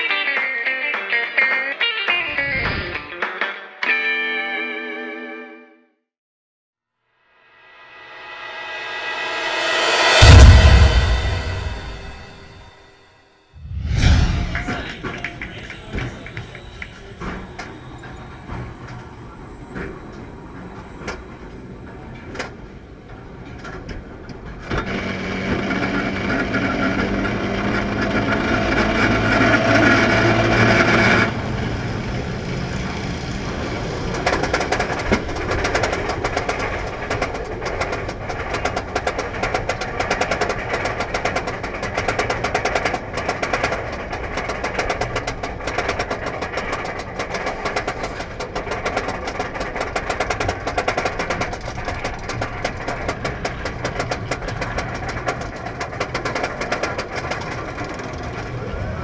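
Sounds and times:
loud mechanical hum: 0:24.6 - 0:37.0
rapid regular clacking: 0:34.1 - 0:58.6.

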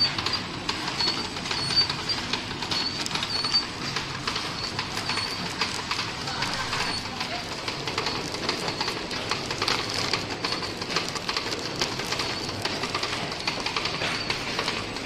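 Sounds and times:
packaging machine clattering: 0:00.0 - 0:15.0.

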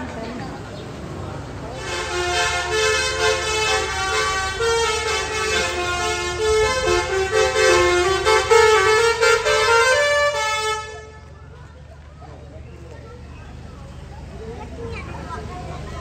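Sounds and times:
multi-tone air horn melody: 0:01.8 - 0:11.3.

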